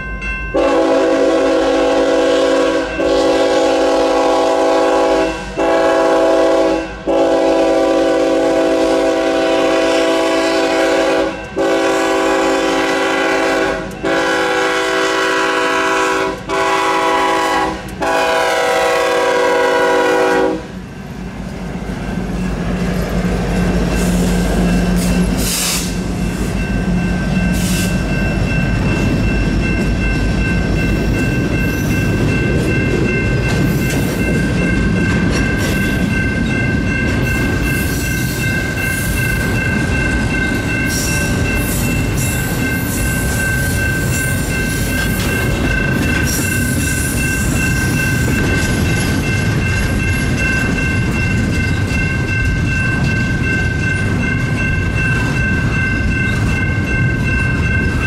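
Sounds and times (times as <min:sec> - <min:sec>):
train engines and wheels rumbling: 0:00.0 - 0:58.0
locomotive air horn blowing: 0:00.6 - 0:20.7, 0:25.4 - 0:26.0.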